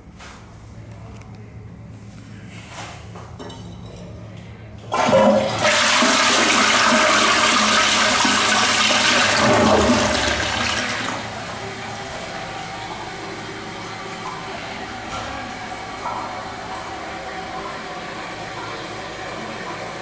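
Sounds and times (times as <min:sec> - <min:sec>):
toilet flushing: 0:04.8 - 0:20.0
toilet tank refilling hiss: 0:04.9 - 0:11.6.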